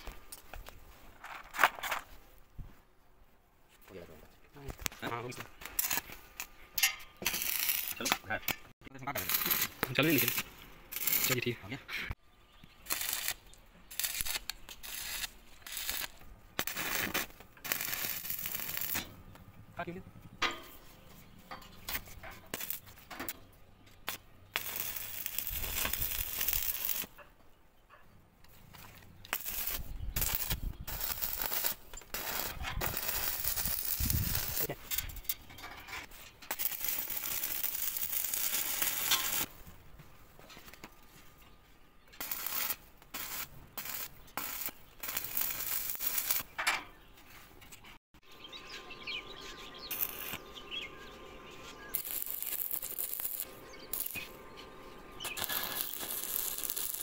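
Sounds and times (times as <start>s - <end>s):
welding arc crackling and sizzling: 4.6s - 6.6s, 7.2s - 11.6s, 12.7s - 19.9s, 21.8s - 23.4s, 24.0s - 27.2s, 29.2s - 35.4s, 36.5s - 39.6s, 42.2s - 46.5s, 49.7s - 50.9s, 51.8s - 54.4s, 55.2s - 57.0s.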